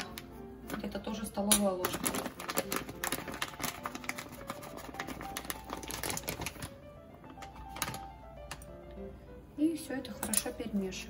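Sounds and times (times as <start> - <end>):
plastic bag rustling: 0.0 - 8.5.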